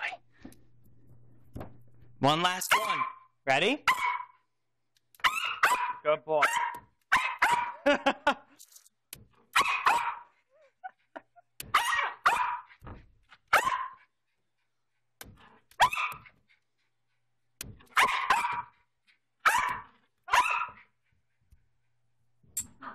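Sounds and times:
dog barking: 2.7 - 4.5, 5.2 - 8.1, 9.5 - 10.4, 11.7 - 12.9, 13.5 - 14.1, 15.7 - 16.4, 17.8 - 18.8, 19.4 - 20.9.

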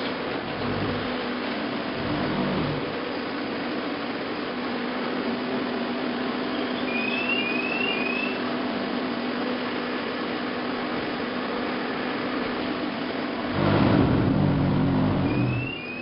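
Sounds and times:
machinery humming: 0.0 - 4.5, 5.7 - 16.0
short rising chirps: 14.8 - 16.0.

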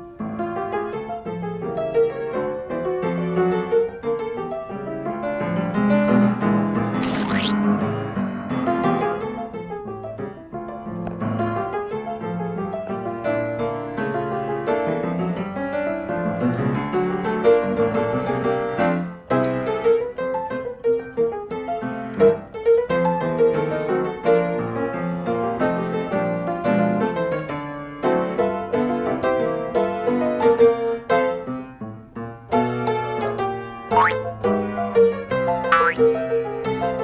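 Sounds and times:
background piano music: 33.9 - 34.4.

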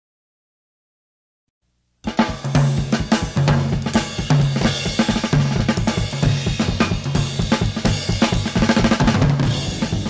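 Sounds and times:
drum kit playing busy beat: 2.0 - 10.0
bass line: 9.0 - 10.0
psychedelic rock instrumental: 9.0 - 10.0.

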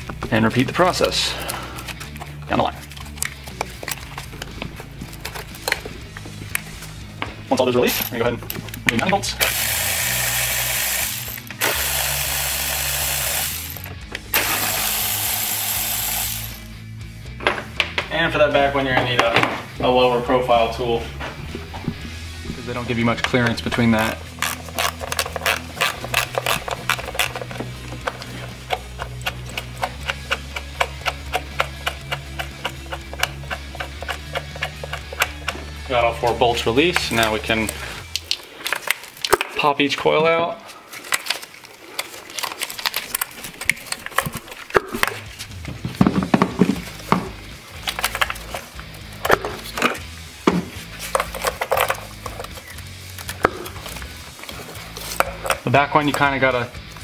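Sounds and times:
background music: 0.0 - 57.0
ignition coils clicking and knocking: 1.5 - 7.3, 22.9 - 39.7, 41.0 - 57.0
ratchet wrench clicking: 9.4 - 16.7, 24.3 - 27.6.

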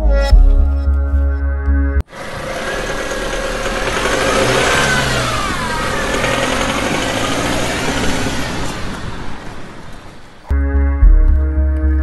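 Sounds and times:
rising and falling whine: 2.0 - 10.2
engine running and revving: 2.1 - 10.5.

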